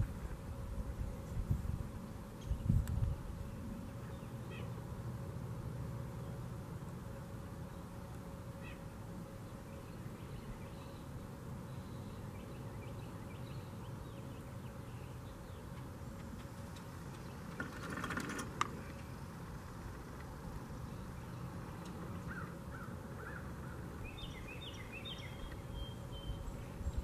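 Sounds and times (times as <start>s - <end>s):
faint bird calls: 3.8s - 4.8s, 8.5s - 9.0s, 20.8s - 27.0s.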